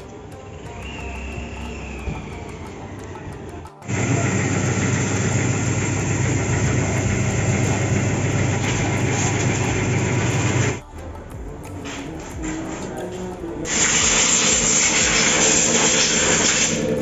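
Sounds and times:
pressure washer motor humming: 0.1s - 10.8s, 13.7s - 17.0s
water jet hissing: 3.8s - 10.8s, 13.7s - 17.0s.

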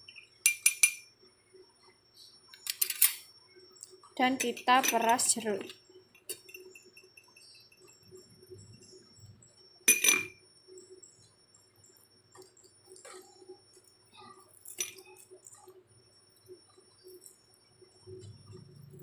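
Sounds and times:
glass bowl clinking: 0.0s - 1.1s, 4.3s - 8.8s, 9.9s - 10.4s, 14.5s - 15.2s.

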